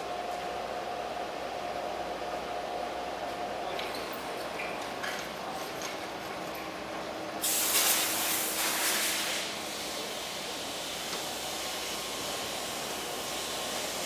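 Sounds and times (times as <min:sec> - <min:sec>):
shop air rushing: 0:07.3 - 0:14.0
compressed air hiss: 0:07.4 - 0:14.0.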